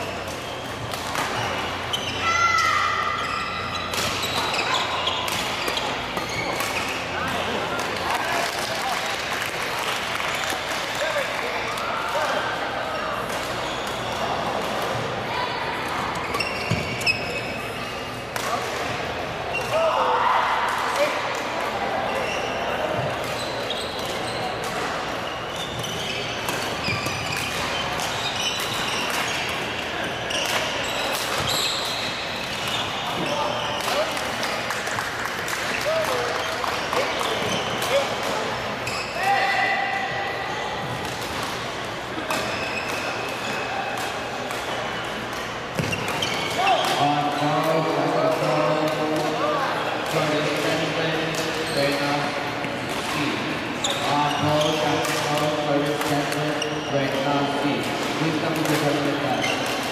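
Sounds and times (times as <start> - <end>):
shoes squeaking on gym floor: 0.0 - 7.5, 13.0 - 15.0, 16.0 - 18.1, 22.1 - 34.6, 35.8 - 38.1, 38.8 - 39.4, 42.1 - 43.8, 44.6 - 47.8, 51.4 - 57.5, 58.8 - 59.9
rackets hitting shuttlecock: 40.8 - 49.4.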